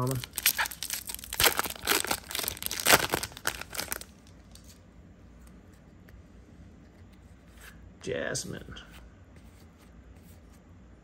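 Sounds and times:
wrapper tearing and crinkling: 0.0 - 4.8.

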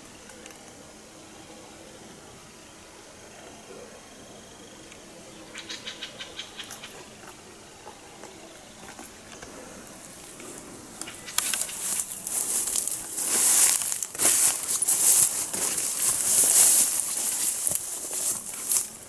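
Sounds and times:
faint light crinkling: 7.2 - 19.0
leafy branches rustling: 8.8 - 19.0
footsteps swishing through tall grass: 11.2 - 19.0.

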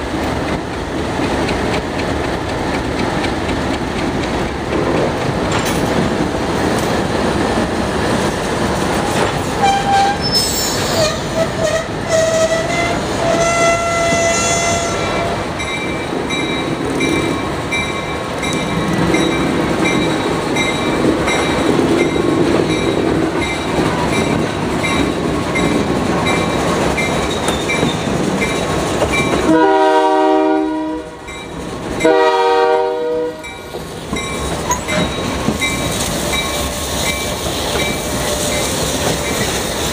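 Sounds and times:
diesel locomotive engine rumble: 0.0 - 39.9
train wheel noise: 0.0 - 39.9
locomotive horn blasts: 9.6 - 10.4, 11.0 - 15.4, 29.5 - 31.2, 32.0 - 33.6
wheels squealing: 9.6 - 14.7.

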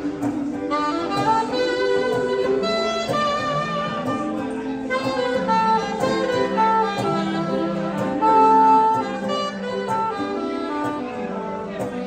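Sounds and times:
saxophone melody: 0.0 - 12.0
strummed acoustic guitar: 0.0 - 12.0.

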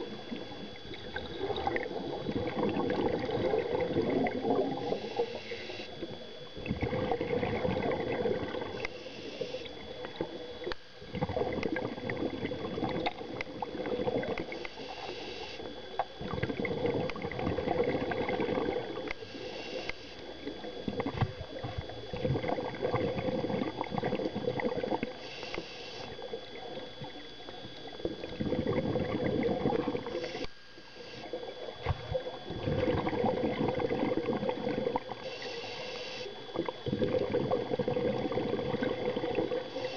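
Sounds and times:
bubbling exhaust underwater: 0.0 - 39.9
regulator inhalation hiss: 4.7 - 6.0, 8.8 - 9.7, 14.5 - 15.7, 19.2 - 20.3, 25.2 - 26.2, 30.1 - 31.3, 35.2 - 36.4, 39.7 - 39.9.

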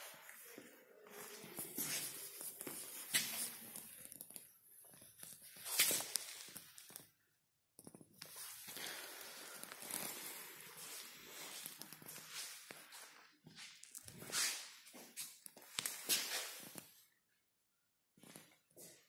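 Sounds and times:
soft footsteps: 0.0 - 7.0
scuffs: 1.1 - 3.9.

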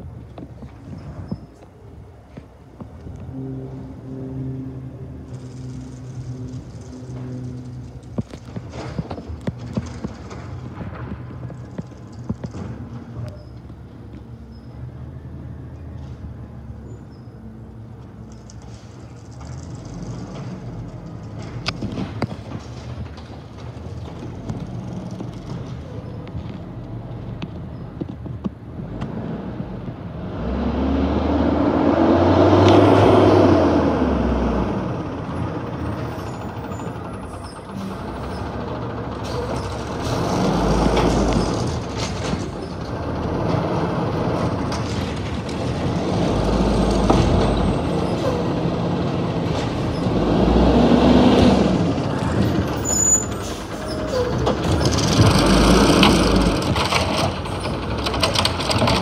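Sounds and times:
garbage truck diesel engine revving: 28.7 - 59.0.

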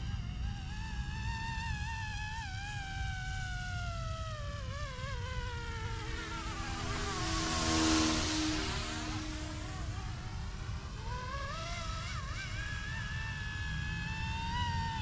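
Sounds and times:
rc helicopter motor and rotor whine: 4.0 - 15.0
helicopter rushing past: 5.0 - 12.5.

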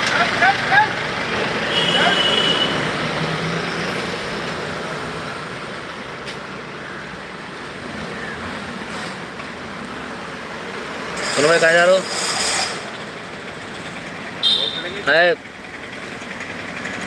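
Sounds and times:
road traffic: 0.0 - 17.0.

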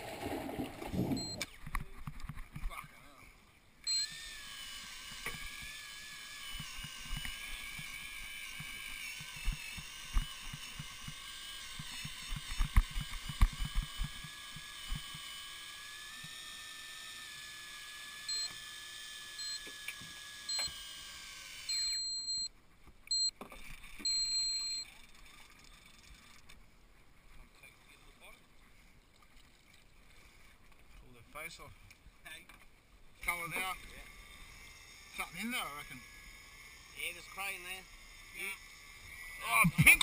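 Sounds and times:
short high beeps: 1.1 - 1.4, 3.8 - 4.2, 18.3 - 18.6, 19.4 - 19.6, 20.5 - 20.7, 21.7 - 22.5, 23.1 - 23.4, 24.0 - 25.0
electric reel motor whining: 3.8 - 22.5, 33.7 - 39.7.

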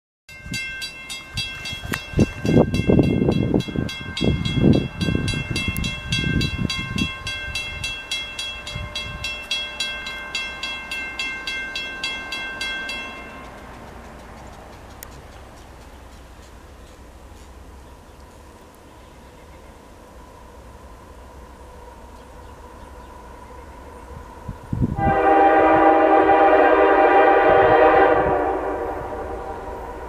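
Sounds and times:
crossing warning bell ringing: 0.3 - 14.1.

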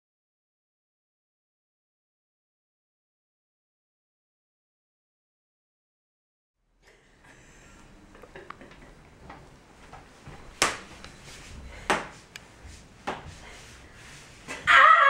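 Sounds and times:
girl crying out: 14.6 - 15.0.

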